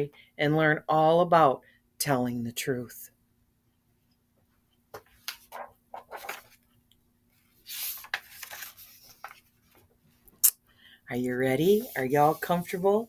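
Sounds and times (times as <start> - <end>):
book pages rustling: 5.0 - 6.7, 7.4 - 10.0, 11.6 - 13.0.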